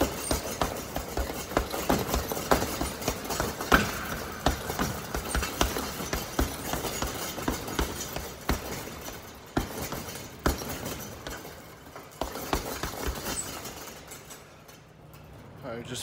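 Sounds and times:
gloves punching heavy bag: 0.0 - 13.9.

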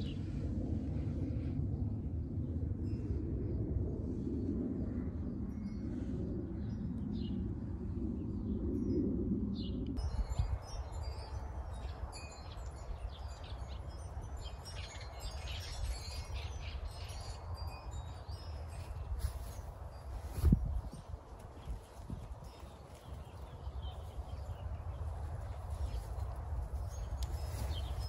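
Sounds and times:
dense low drone: 0.0 - 12.1
steady low rumble: 0.0 - 13.4, 15.0 - 28.0
small birds chirping: 21.8 - 26.2.

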